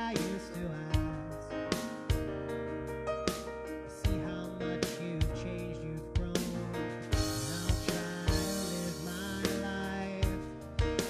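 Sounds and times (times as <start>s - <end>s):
electric bass: 0.0s - 11.0s
keyboard chords: 0.0s - 11.0s
sharp drum hits: 6.2s - 11.0s.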